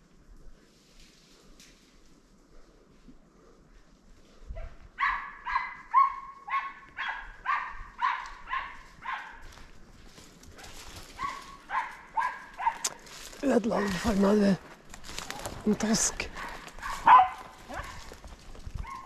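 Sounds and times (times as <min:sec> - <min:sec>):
dog barking: 0:04.6 - 0:09.5, 0:10.6 - 0:13.0, 0:16.3 - 0:18.2, 0:18.8 - 0:19.0.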